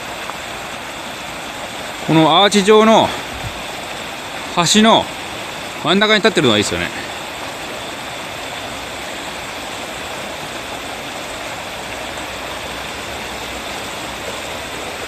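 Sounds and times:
creek water rushing: 0.0s - 15.0s.

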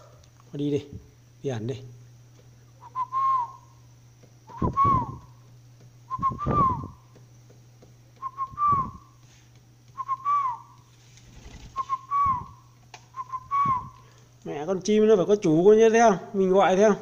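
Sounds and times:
person whistling a dove call: 2.8s - 3.8s, 4.5s - 5.4s, 6.1s - 7.0s, 8.2s - 9.2s, 9.9s - 10.8s, 11.6s - 14.1s.

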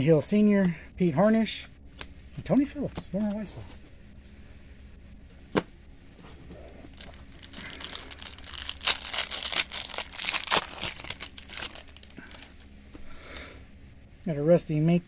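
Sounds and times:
wrapper crinkling and tearing: 6.5s - 12.7s.

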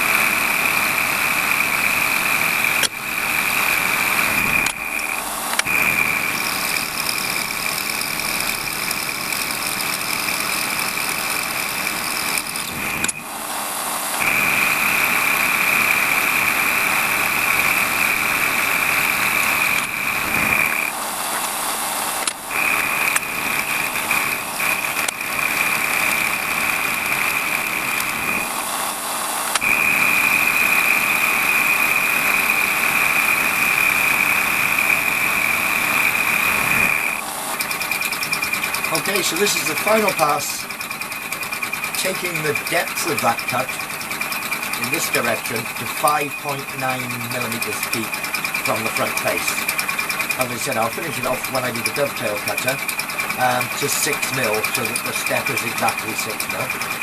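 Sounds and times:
high-pitched cutting whine: 0.0s - 57.0s
lathe running: 0.0s - 57.0s.

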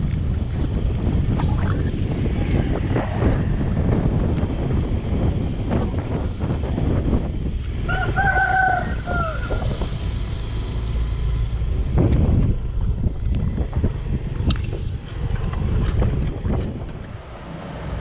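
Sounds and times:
motorcycle riding on dirt road: 0.0s - 18.0s
wind on microphone: 0.0s - 18.0s
rooster crowing: 7.9s - 9.7s.

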